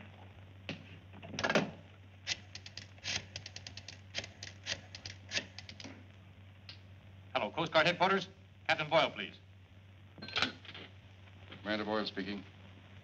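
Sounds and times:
steady low hum: 0.0s - 13.0s
rotary dial clicking: 2.3s - 5.9s.

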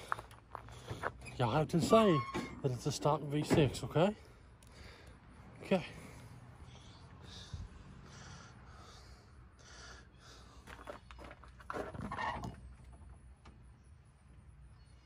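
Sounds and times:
man breathing heavily: 0.0s - 1.2s, 4.1s - 11.1s.

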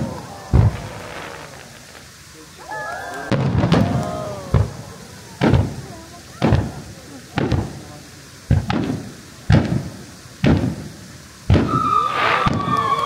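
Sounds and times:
firework shells bursting: 0.0s - 13.0s
high whistle-like tone: 11.6s - 13.0s.

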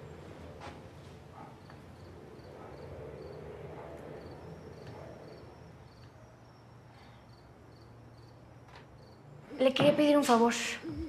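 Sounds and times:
faint low night hum: 0.0s - 11.0s
cricket chirping: 1.6s - 9.5s.

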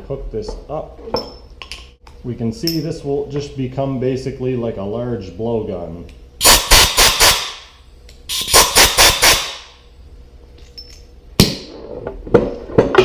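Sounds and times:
compressed air blasts: 6.4s - 9.8s.

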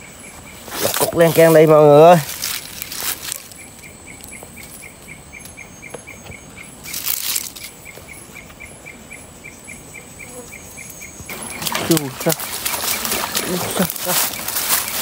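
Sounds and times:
insect chirping: 0.0s - 15.0s
dry leaves rustling: 0.6s - 4.8s, 6.8s - 8.0s, 11.3s - 15.0s.

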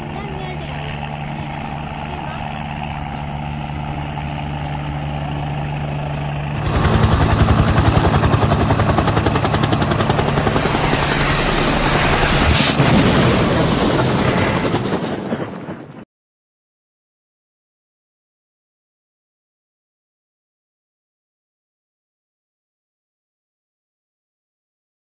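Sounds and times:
helicopter engine and rotor: 0.0s - 12.9s.

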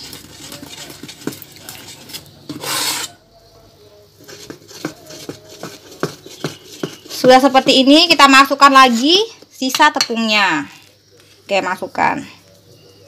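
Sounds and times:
spoon scraping metal saucepan: 0.0s - 3.2s, 4.2s - 10.2s.

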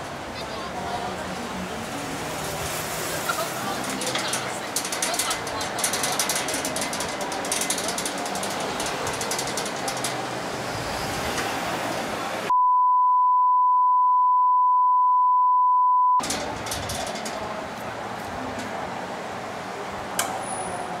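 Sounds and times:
metal sliding gate rattling: 3.2s - 12.5s, 16.2s - 19.0s
censor bleep tone: 12.5s - 16.2s.

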